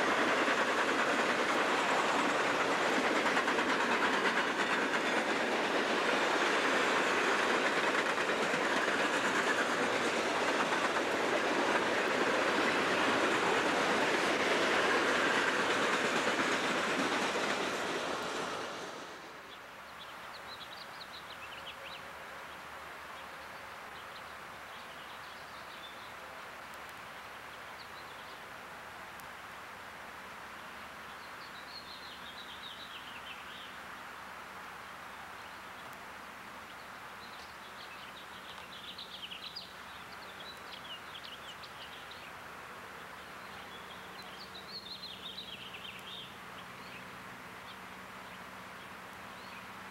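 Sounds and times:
distant diesel locomotive hum: 0:00.0 - 0:19.7, 0:31.8 - 0:49.9
freight train rolling by: 0:00.0 - 0:19.7, 0:36.9 - 0:49.9.

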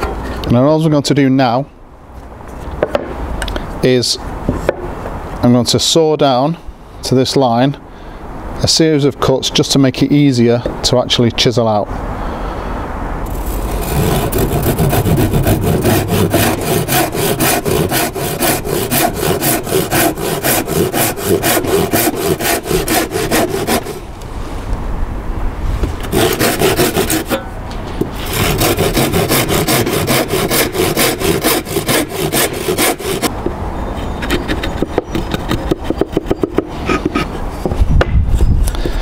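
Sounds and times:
handsaw cutting wood: 0:13.3 - 0:24.1, 0:26.0 - 0:27.4, 0:28.1 - 0:33.3.

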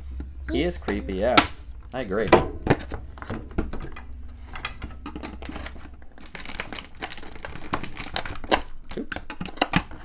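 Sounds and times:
packaging crinkling and rustling: 0:02.8 - 0:10.0
packaging snapping: 0:04.6 - 0:10.0.

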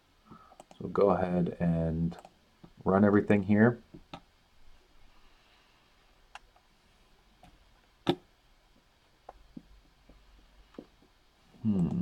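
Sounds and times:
faint room noise: 0:00.0 - 0:12.0
computer mouse clicks: 0:00.6 - 0:00.8, 0:02.2 - 0:02.4.

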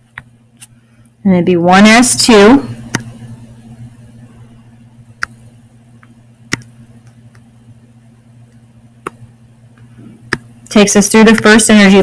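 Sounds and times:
low electrical hum: 0:00.0 - 0:12.0
stylus tapping screen: 0:05.2 - 0:05.4, 0:06.0 - 0:07.5, 0:09.0 - 0:09.2, 0:09.8 - 0:10.5, 0:11.2 - 0:11.6.

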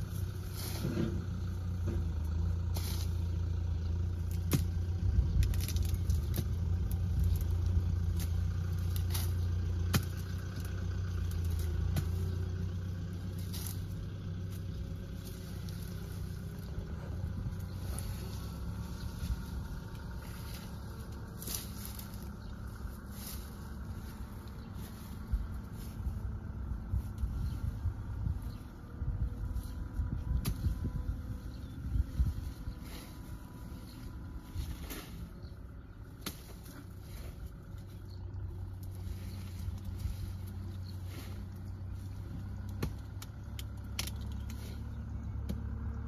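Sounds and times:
low drone: 0:00.0 - 0:46.0
blade chopping stalks: 0:04.2 - 0:07.5, 0:08.1 - 0:12.5, 0:17.5 - 0:25.4, 0:36.1 - 0:37.5, 0:38.8 - 0:45.8.

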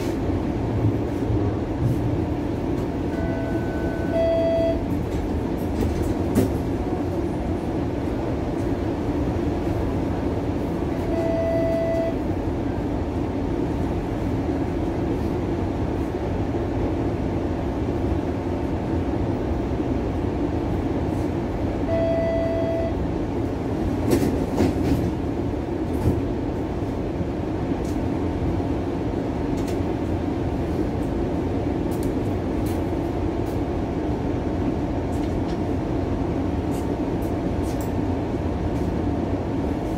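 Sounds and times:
streetcar rumbling on rails: 0:00.0 - 0:39.9
short electronic beeps: 0:03.1 - 0:04.8, 0:11.0 - 0:12.2, 0:21.9 - 0:23.0.

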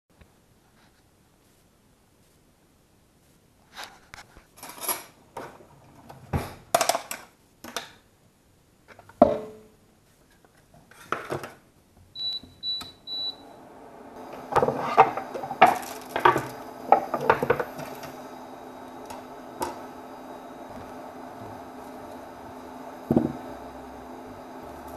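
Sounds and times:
hob touch control beeps: 0:12.2 - 0:13.4
induction hob humming: 0:12.2 - 0:24.9.

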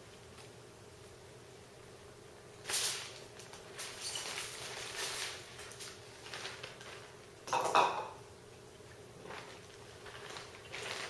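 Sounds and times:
plastic bag crinkling: 0:02.6 - 0:07.4, 0:09.2 - 0:11.0.

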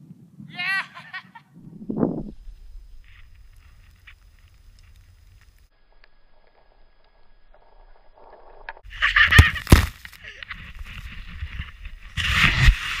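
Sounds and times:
wind buffeting microphone: 0:01.5 - 0:05.6
skis rushing through powder: 0:08.9 - 0:13.0.

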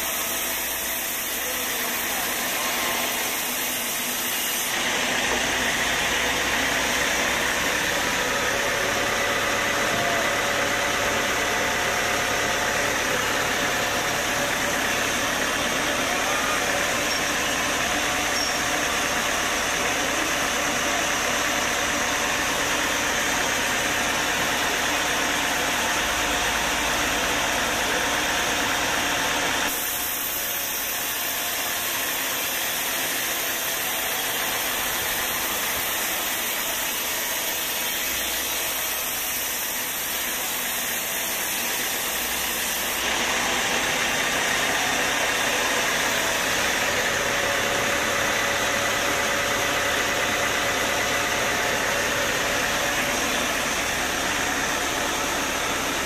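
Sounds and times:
band saw cutting wood: 0:00.0 - 0:10.5, 0:29.6 - 0:56.0.

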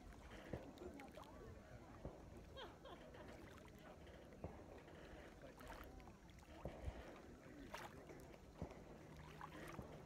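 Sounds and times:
small waves lapping at shore: 0:00.0 - 0:10.0.

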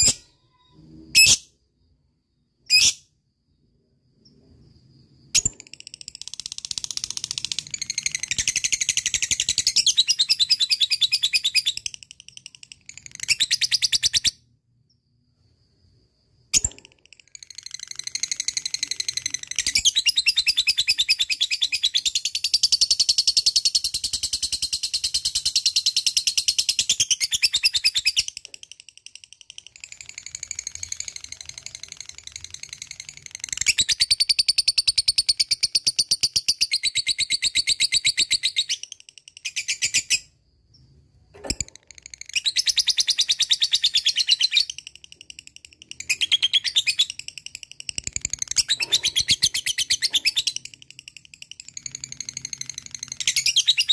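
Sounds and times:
bird chattering trill: 0:42.1 - 0:53.9.

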